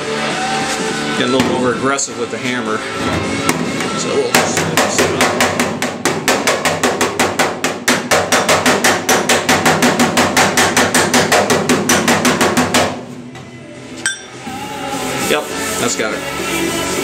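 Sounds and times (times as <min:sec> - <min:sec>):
air hammer rapping on metal: 0:03.4 - 0:13.0.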